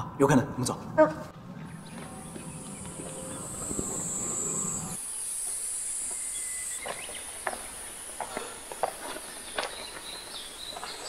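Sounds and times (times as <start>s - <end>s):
low hum: 0.0s - 6.7s
high-pitched insect chorus: 1.8s - 11.0s.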